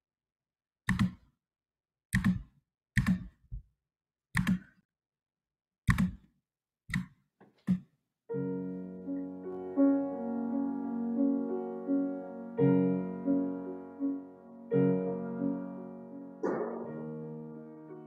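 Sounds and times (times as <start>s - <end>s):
piano music: 8.3s - 18.0s.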